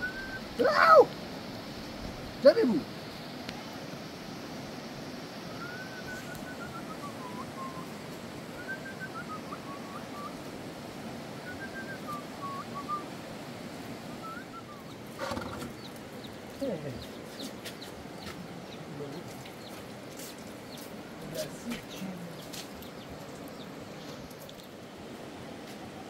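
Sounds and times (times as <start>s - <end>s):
thin whistling: 0.0s - 0.5s, 5.5s - 8.0s, 8.6s - 10.4s, 11.4s - 13.1s, 14.2s - 14.9s
steady background hiss: 0.0s - 26.0s.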